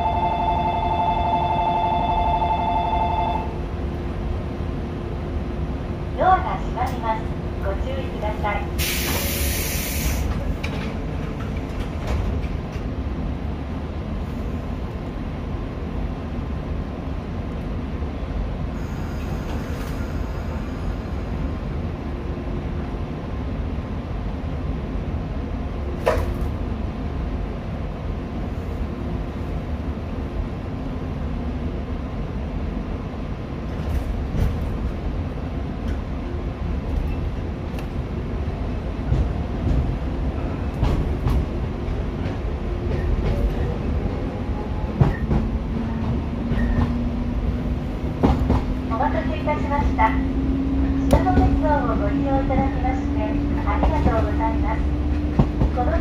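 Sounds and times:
electric train rumble: 0.0s - 56.0s
brief hiss: 8.8s - 10.3s.

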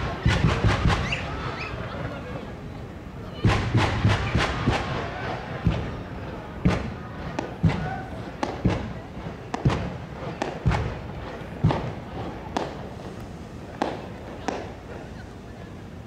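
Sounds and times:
fireworks booming: 0.0s - 1.3s, 3.4s - 15.0s.

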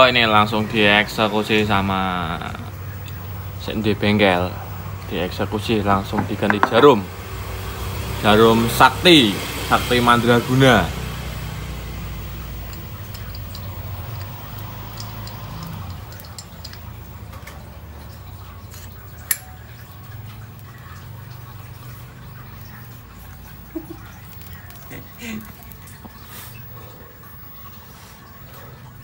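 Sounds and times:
metallic clicks of parts handled: 12.6s - 17.6s.

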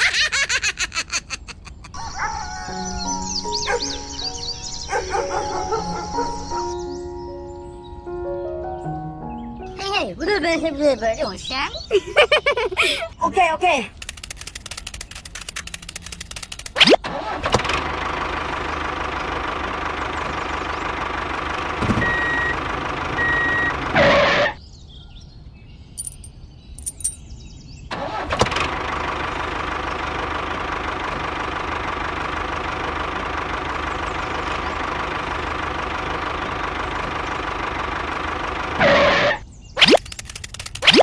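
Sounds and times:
tractor engine idling: 1.9s - 7.0s, 13.9s - 24.4s, 28.0s - 39.2s.

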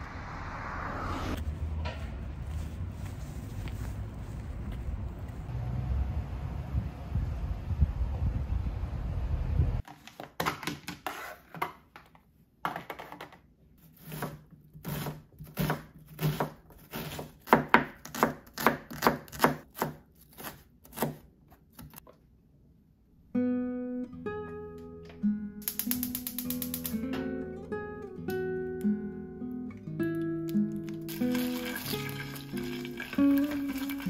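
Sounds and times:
knife chopping on wooden board: 14.0s - 21.2s
acoustic guitar music: 23.3s - 34.0s.

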